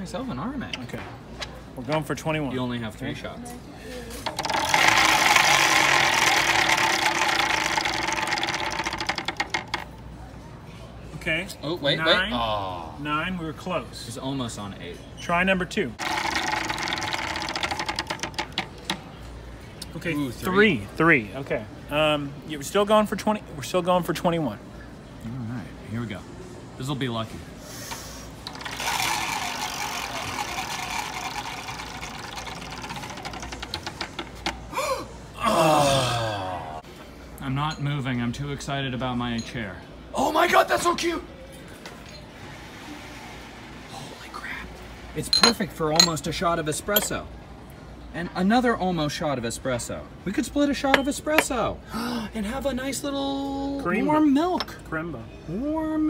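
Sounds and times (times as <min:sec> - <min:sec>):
prize wheel pointer clicking: 0:04.2 - 0:09.9, 0:16.0 - 0:19.0, 0:28.4 - 0:34.6.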